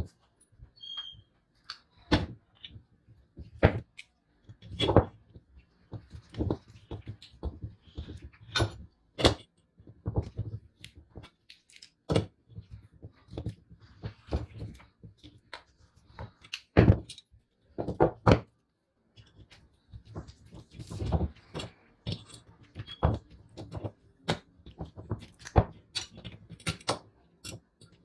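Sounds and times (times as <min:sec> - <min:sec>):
screwdriver and metal parts clicking: 0:21.5 - 0:23.0, 0:25.2 - 0:28.0.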